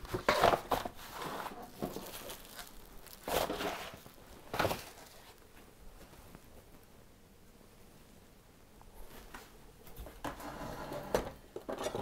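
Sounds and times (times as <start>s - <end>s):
packaging rustling scrapes: 0.0s - 5.4s.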